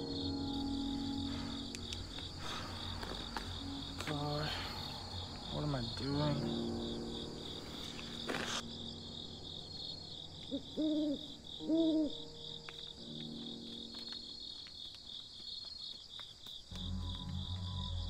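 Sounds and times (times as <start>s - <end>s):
low musical drone: 0.0s - 14.1s, 16.7s - 18.0s
crickets chirping: 0.0s - 18.0s
owl hooting: 10.5s - 12.3s.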